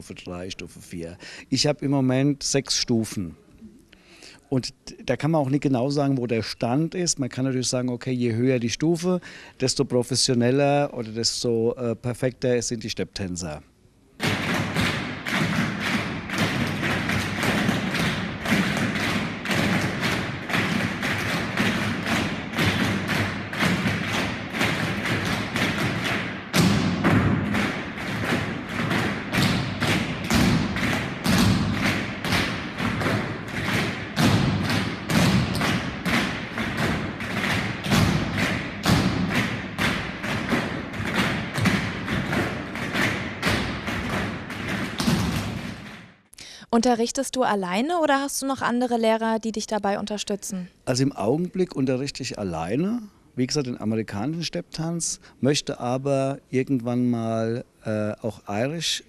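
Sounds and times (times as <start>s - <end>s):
tap shoes on wooden floor: 14.2s - 46.0s.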